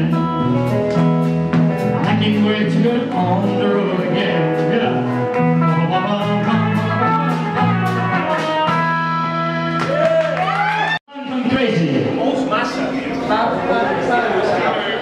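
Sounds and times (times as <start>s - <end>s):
country band playing: 0.0s - 10.4s, 11.2s - 15.0s.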